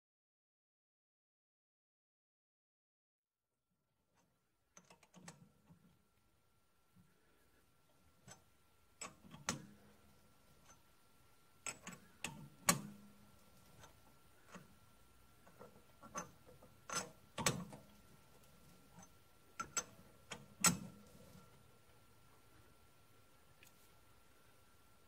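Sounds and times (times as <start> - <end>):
chuck key clicking and knocking: 15.4 - 18.0, 18.9 - 21.0.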